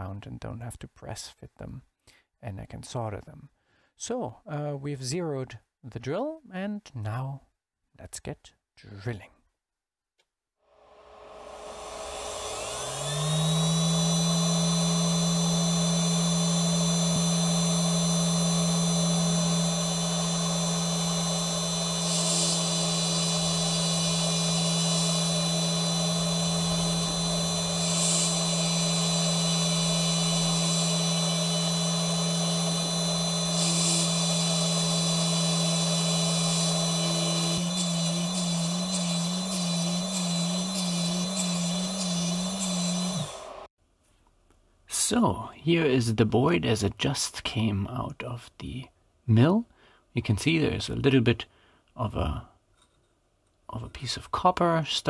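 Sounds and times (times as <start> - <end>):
spindle high whine drilling: 10.8 - 43.7.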